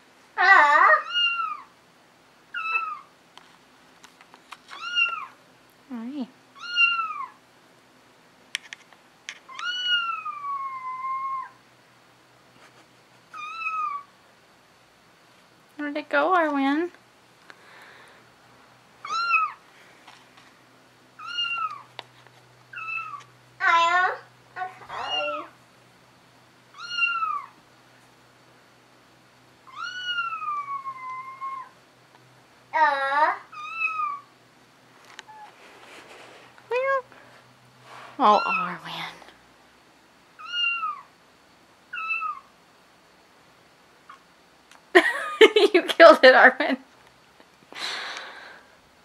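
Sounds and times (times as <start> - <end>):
cat meowing: 0.4 - 1.7, 2.5 - 3.1, 4.7 - 5.4, 6.6 - 7.4, 9.5 - 11.6, 13.3 - 14.1, 19.0 - 19.6, 21.2 - 21.9, 22.7 - 23.8, 24.8 - 25.6, 26.7 - 27.6, 29.7 - 31.8, 33.5 - 34.3, 40.4 - 41.1, 41.9 - 42.5.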